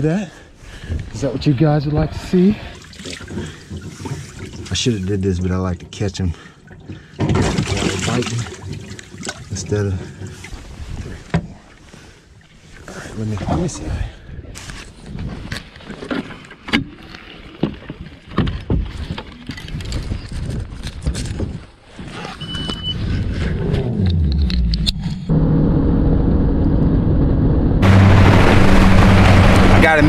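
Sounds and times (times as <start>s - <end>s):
outboard motor running: 2.8s - 4.8s, 27.8s - 30.0s
wind noise on microphone: 18.4s - 25.4s
short beep: 22.4s - 23.0s.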